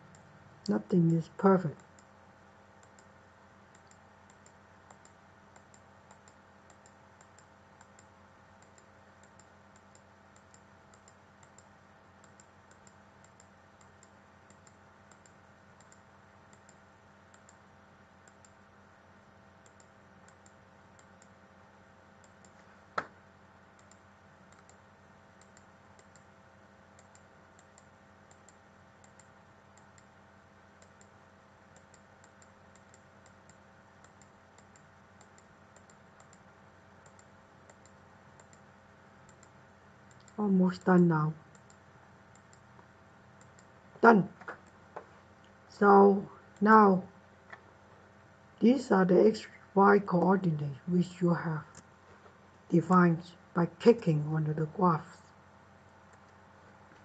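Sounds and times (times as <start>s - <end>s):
computer mouse clicks: 0.0s - 0.4s, 1.8s - 2.2s, 2.8s - 18.6s, 19.6s - 21.4s, 22.2s - 24.8s, 25.4s - 40.4s, 41.5s - 43.8s, 44.4s - 45.6s
low electrical hum: 0.0s - 57.0s.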